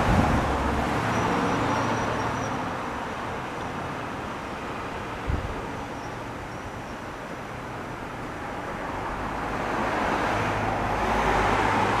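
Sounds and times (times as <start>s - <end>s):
vehicle engine hum: 0.0s - 12.0s.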